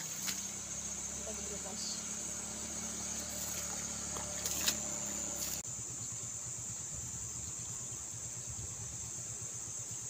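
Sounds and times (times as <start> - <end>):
high-pitched insect drone: 0.0 - 10.0.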